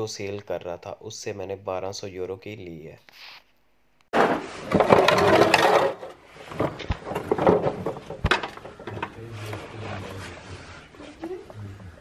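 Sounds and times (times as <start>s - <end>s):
handling and scraping noise: 4.1s - 11.4s.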